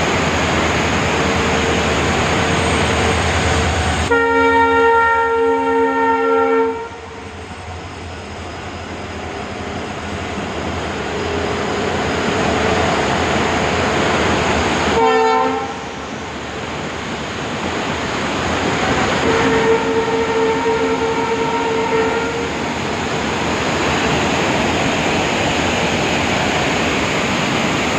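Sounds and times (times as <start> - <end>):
train passing: 0.0 - 27.9
train horn blasts: 4.1 - 7.3, 14.9 - 16.0, 19.0 - 22.6.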